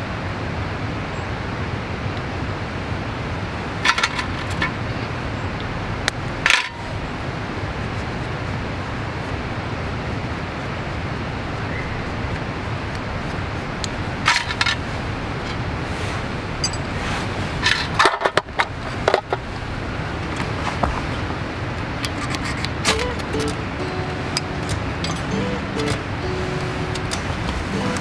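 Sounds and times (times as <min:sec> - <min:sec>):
steady background hiss: 0:00.0 - 0:28.0
metallic clicks and scrapes: 0:03.8 - 0:04.8, 0:06.4 - 0:07.0, 0:12.2 - 0:19.4, 0:21.8 - 0:28.0.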